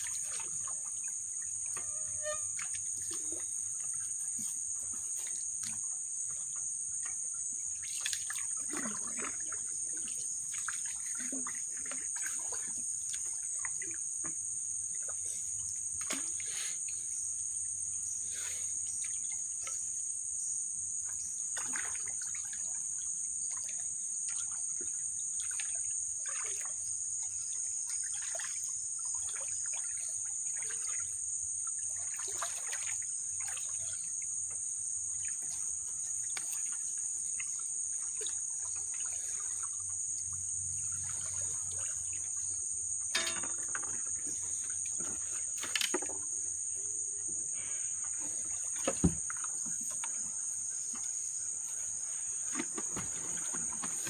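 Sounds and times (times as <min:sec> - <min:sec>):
paddle splashing in water: 0:00.0 - 0:05.8, 0:07.0 - 0:15.4, 0:21.4 - 0:22.7, 0:23.4 - 0:31.1, 0:31.8 - 0:34.1, 0:35.2 - 0:42.5, 0:48.1 - 0:54.0
insects droning in chorus: 0:00.0 - 0:54.0.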